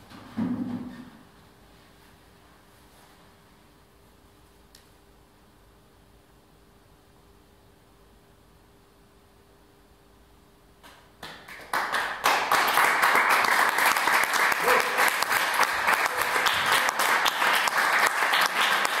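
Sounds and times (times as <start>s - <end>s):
audience applause: 11.2s - 19.0s.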